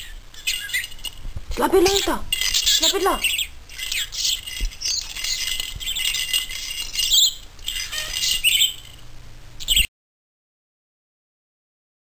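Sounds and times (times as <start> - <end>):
budgerigar chattering and warbling: 1.8 - 5.0.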